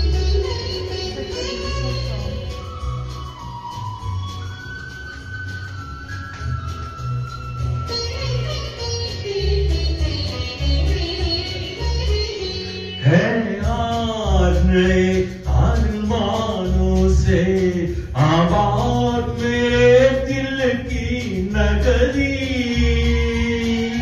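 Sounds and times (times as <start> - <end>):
backing music with bass pulse: 0.0 - 24.0
man singing into microphone: 13.0 - 24.0.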